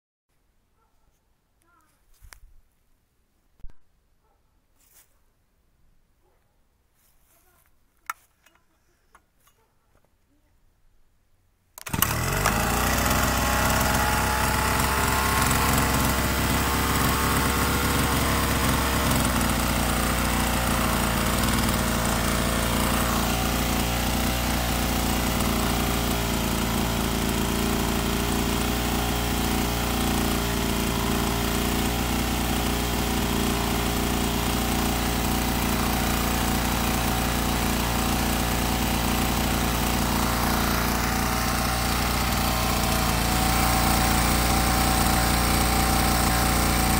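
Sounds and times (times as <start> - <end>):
small gasoline engine running: 11.8 - 46.9.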